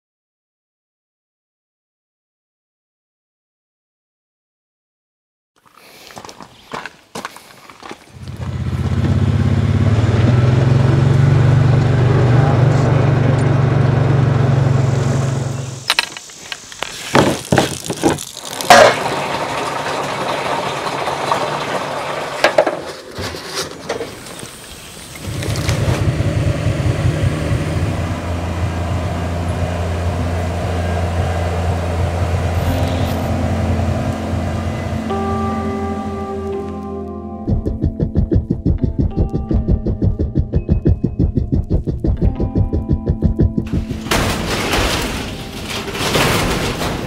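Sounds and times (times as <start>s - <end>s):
small engine running: 8.2s - 15.9s, 25.2s - 35.8s.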